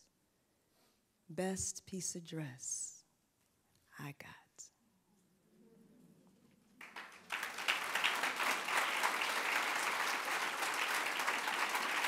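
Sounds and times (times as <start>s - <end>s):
crowd applause: 6.8s - 12.0s.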